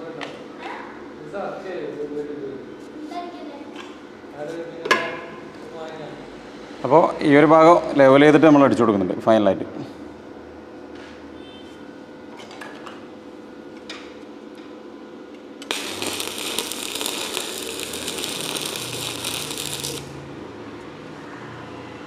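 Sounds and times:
arc welding crackle and hiss: 15.6s - 20.4s.

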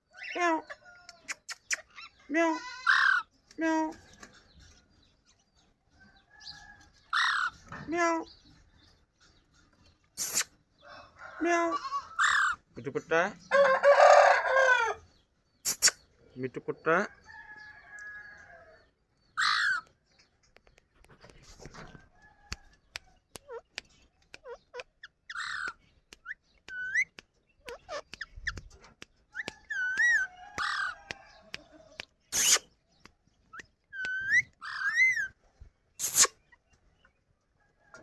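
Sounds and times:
parakeets screeching: 2.8s - 3.3s, 7.1s - 7.6s, 12.0s - 12.6s, 19.4s - 19.8s, 25.3s - 25.8s, 34.0s - 35.3s.

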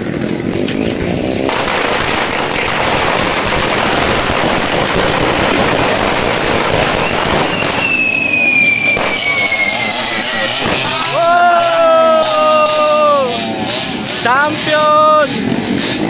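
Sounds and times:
firecrackers crackling: 0.0s - 16.0s
thin high falling tone: 7.0s - 14.2s.

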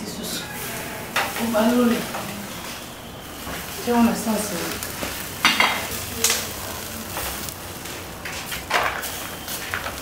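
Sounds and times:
food sizzling: 0.4s - 10.0s.

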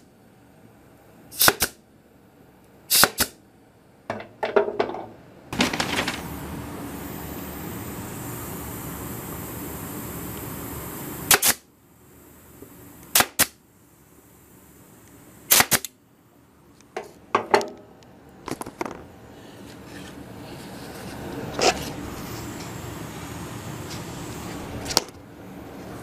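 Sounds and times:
steady hum: 0.0s - 26.0s
pin nailer popping: 11.3s - 11.6s, 13.1s - 13.6s, 15.5s - 15.9s.

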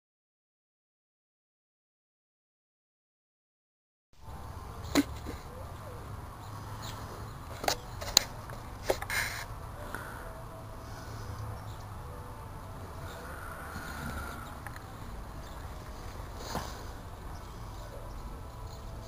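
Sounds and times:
steady low rumble: 9.4s - 19.0s.

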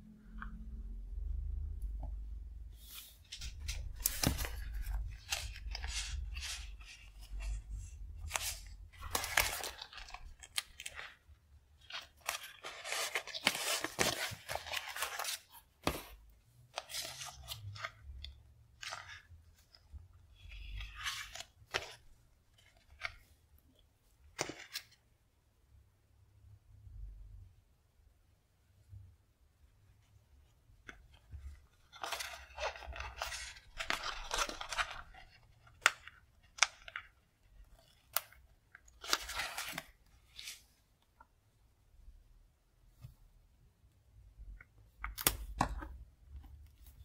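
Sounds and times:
paper sheets rustling: 2.8s - 11.2s, 11.8s - 16.2s, 31.8s - 37.0s.

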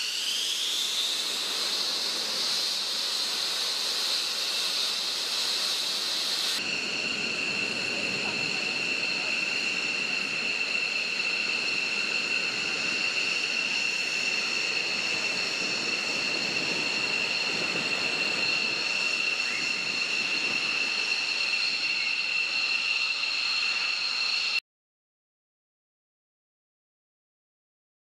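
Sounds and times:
jet turbines whining: 0.0s - 24.6s.

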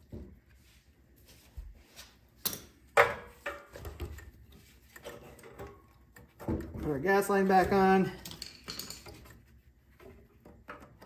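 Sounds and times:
screwdriver and metal parts clicking: 8.2s - 9.4s.

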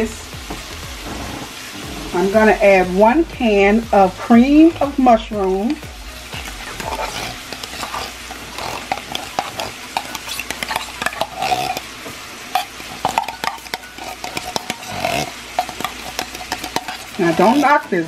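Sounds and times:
food sizzling in a skillet: 0.0s - 18.0s
spoon clicking and scraping: 6.4s - 11.9s, 12.5s - 18.0s.

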